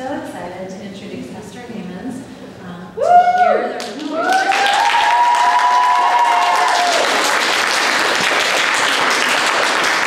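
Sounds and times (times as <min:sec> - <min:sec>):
high whoop from crowd: 0:03.0 - 0:07.3
audience applauding: 0:03.8 - 0:10.0.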